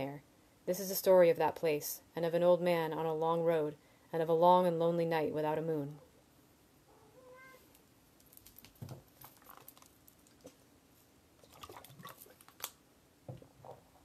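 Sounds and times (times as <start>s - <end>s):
sips and swallows: 11.4s - 12.6s.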